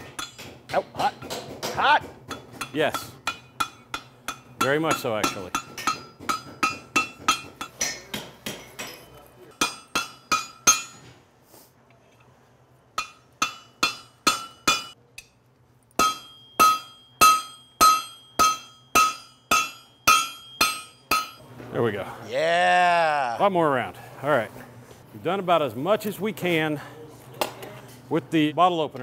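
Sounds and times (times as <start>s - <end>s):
hammer striking hot steel: 0.0s - 11.2s, 13.0s - 21.4s.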